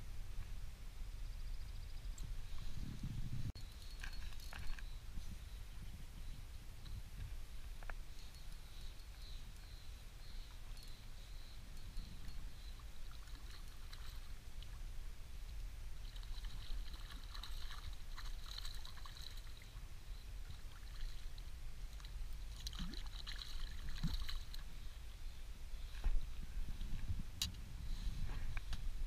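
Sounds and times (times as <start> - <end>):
fish splashing at the surface: 22.6 - 24.6.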